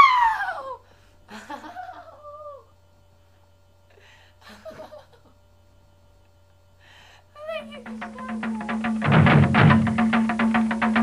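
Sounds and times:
person crying out high-pitched: 0.0 - 0.8, 1.9 - 2.7, 7.4 - 8.7.

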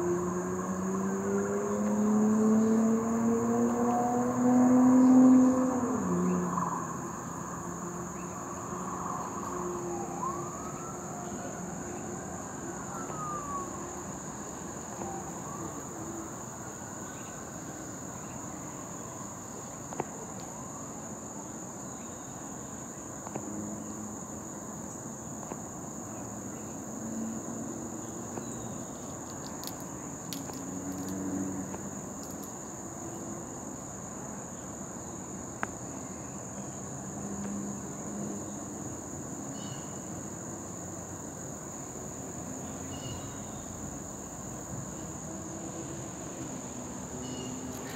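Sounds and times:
high-pitched insect chorus: 0.0 - 47.9.

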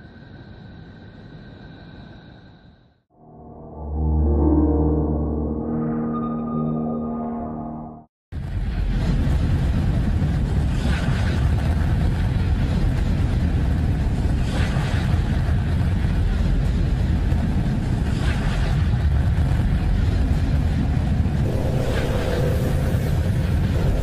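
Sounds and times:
deep rumbling drone: 3.1 - 8.1, 21.3 - 24.0
hissing whooshing swell: 21.5 - 24.0.

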